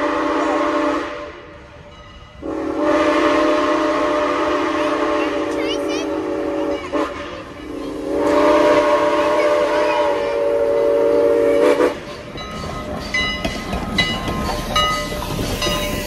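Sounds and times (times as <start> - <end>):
steam whistle chord: 0.0 - 1.5, 2.4 - 12.0
locomotive rumbling and knocking: 11.9 - 16.0.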